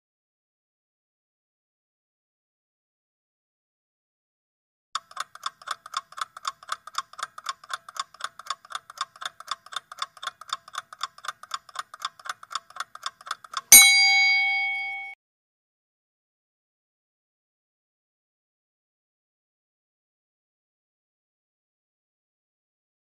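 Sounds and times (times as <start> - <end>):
rapid clock ticking: 5.0 - 13.8
loud bell ding: 13.7 - 15.2.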